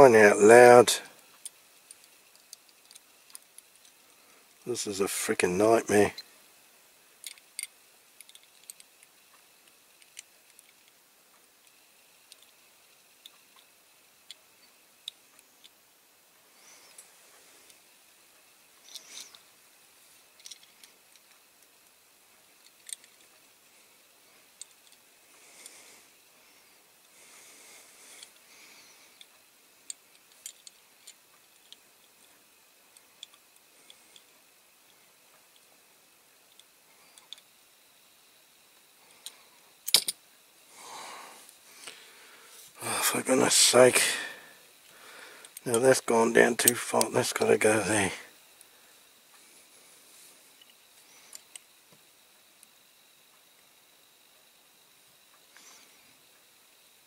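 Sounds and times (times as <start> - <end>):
model parts clicking: 1.3 - 4.6, 7.2 - 11.0, 20.3 - 21.7, 22.6 - 23.4, 29.2 - 32.3, 32.9 - 34.3, 39.2 - 40.2.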